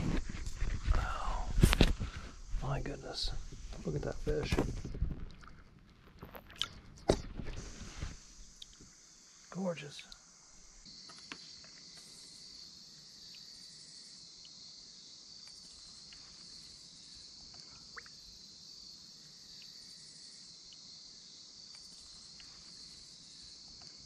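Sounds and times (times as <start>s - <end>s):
faint pulsing insect layer: 0.0s - 24.0s
insects buzzing: 0.0s - 24.0s.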